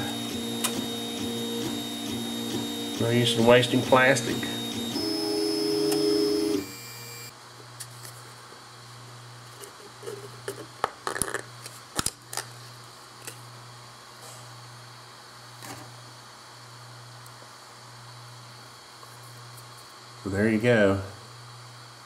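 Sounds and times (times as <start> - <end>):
stepper motors whining: 0.0 - 7.3.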